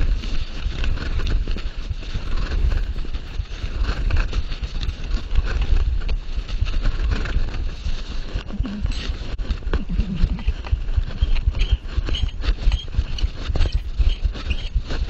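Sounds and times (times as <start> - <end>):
heavy low rumble: 0.0 - 14.9
fabric rubbing on microphone: 0.0 - 15.0.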